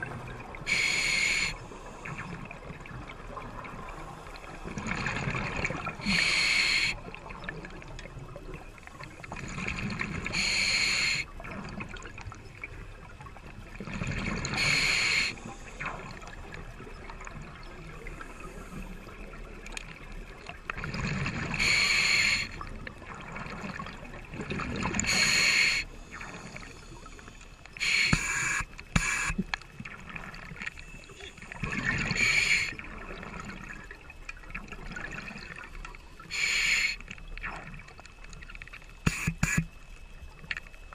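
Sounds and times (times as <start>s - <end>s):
diver breathing through regulator: 0.7s - 2.1s, 6.0s - 7.0s, 10.3s - 11.3s, 14.5s - 15.8s, 21.5s - 22.6s, 25.0s - 29.4s, 32.0s - 32.8s, 36.3s - 37.0s, 39.1s - 39.7s.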